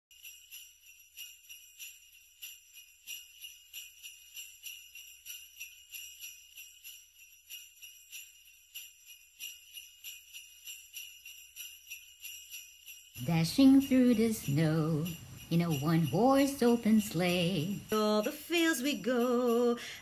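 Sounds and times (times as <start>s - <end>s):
sleigh bells jingling: 0.1s - 20.0s.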